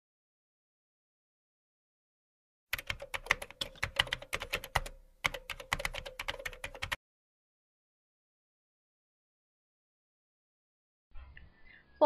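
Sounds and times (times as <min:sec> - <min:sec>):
rapid keyboard typing: 0:02.7 - 0:07.0.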